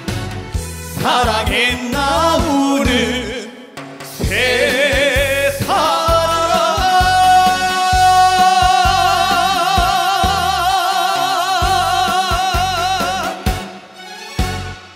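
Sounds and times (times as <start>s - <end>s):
band backing with drum beat: 0.0s - 14.9s
man singing with vibrato: 0.9s - 14.0s.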